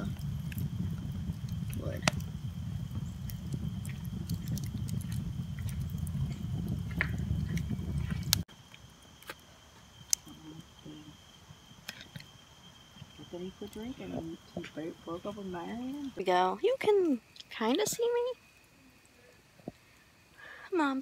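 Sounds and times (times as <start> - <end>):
low rumble: 0.0 - 8.5
campfire crackling and popping: 0.0 - 10.4, 11.5 - 20.2.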